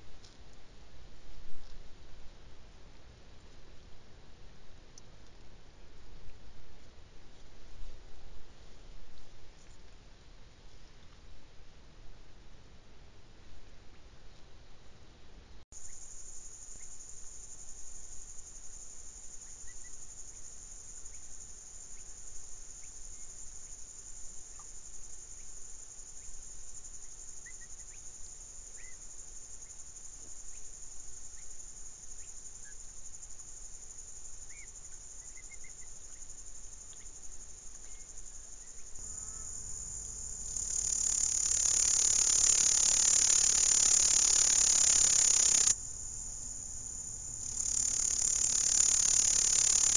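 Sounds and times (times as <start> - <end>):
insect stridulation: 15.8 - 49.9
bird chirps: 37.8 - 49.9.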